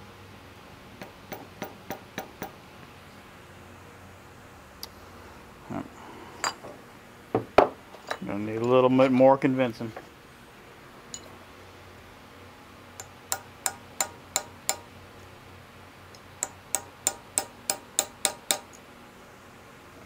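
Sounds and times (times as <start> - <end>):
hammer tapping metal punch: 1.0 - 2.6, 13.0 - 14.9, 16.4 - 18.8.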